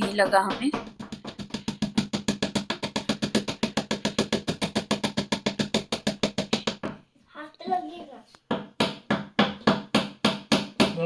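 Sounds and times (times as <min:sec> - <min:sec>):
music with fast percussive beat: 0:00.0 - 0:06.9.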